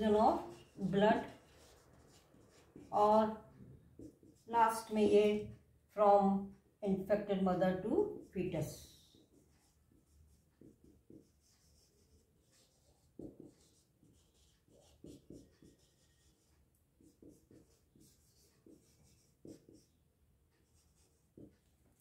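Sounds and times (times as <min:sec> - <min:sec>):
marker pen writing on whiteboard: 0:00.0 - 0:05.6, 0:07.2 - 0:22.0.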